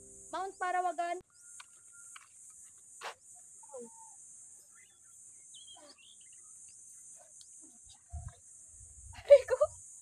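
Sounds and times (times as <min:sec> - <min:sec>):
steady high-pitched hiss: 0:00.0 - 0:10.0
faint bird calls: 0:03.1 - 0:06.6.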